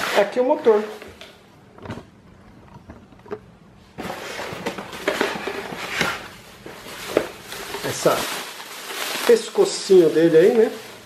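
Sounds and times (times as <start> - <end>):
plastic wrapping crinkling: 4.0 - 11.0.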